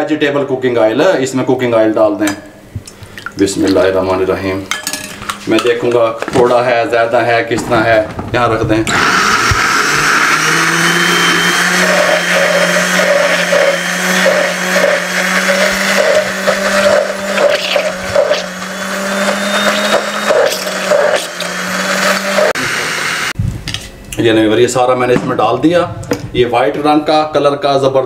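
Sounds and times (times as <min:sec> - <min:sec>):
electric blender grinding: 0:08.9 - 0:23.4.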